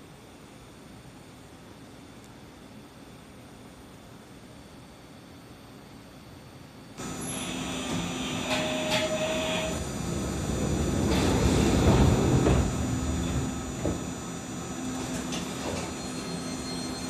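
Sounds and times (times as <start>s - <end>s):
tram electrical hum: 7.0s - 17.0s
tram rumble: 7.0s - 17.0s.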